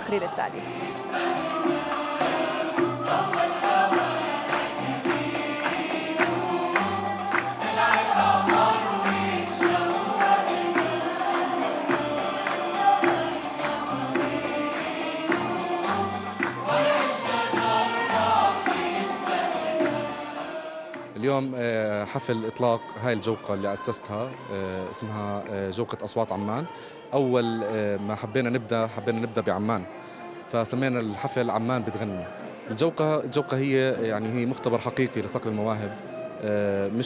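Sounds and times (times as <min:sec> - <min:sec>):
steady percussion beat: 0:00.0 - 0:20.6
mixed choir singing: 0:00.0 - 0:37.0.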